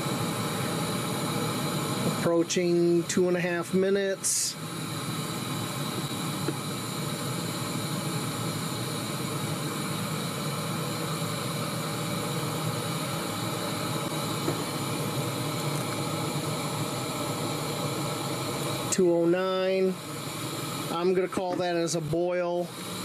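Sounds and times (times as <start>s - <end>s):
gas stove hissing: 0.0s - 23.0s
water bubbling in a pot: 12.0s - 19.0s.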